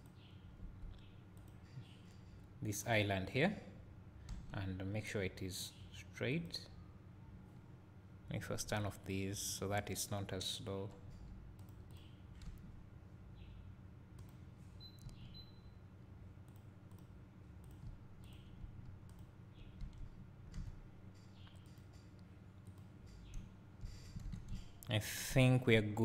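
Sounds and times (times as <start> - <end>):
low steady hum: 0.0 - 26.0
computer mouse clicks: 11.1 - 12.6, 14.2 - 15.5, 16.4 - 24.8.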